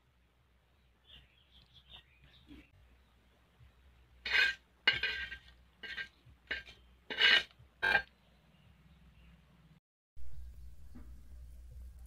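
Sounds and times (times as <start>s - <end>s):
metal spatula scraping pan: 4.2s - 8.1s.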